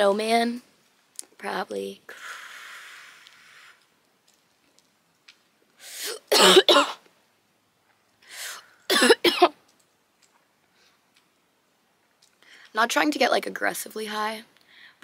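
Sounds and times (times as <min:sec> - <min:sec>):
breathy exhale: 0:02.1 - 0:03.8, 0:08.3 - 0:08.8.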